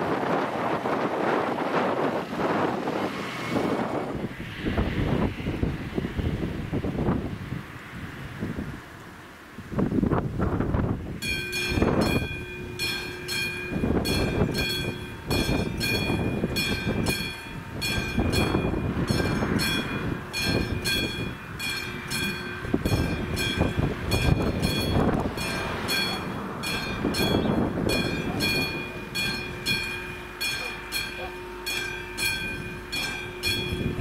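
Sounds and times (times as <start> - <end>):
wind buffeting microphone: 0.0 - 34.0
level crossing bell ringing: 11.2 - 34.0.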